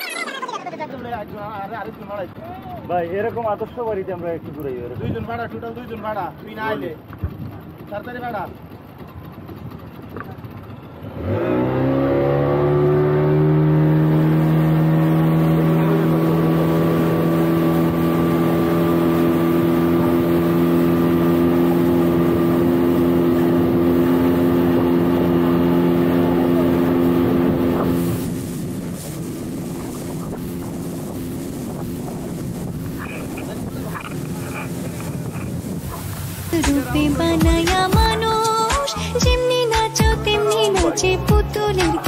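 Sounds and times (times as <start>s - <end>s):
speedboat engine at high revs: 0.6s - 42.0s
rush of wind and water: 12.2s - 38.6s.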